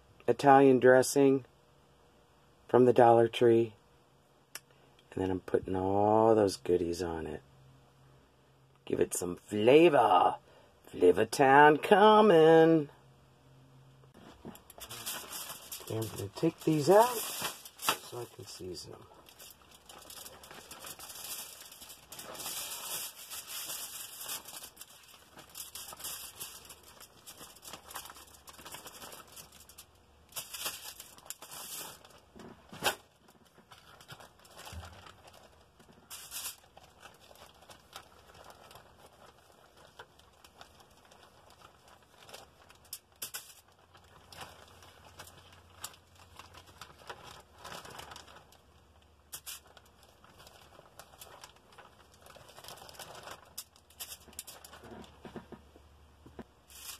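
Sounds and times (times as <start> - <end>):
foil crinkling: 14.2 - 55.6, 56.6 - 56.9
plastic bag crinkling: 14.2 - 55.6, 56.6 - 56.9.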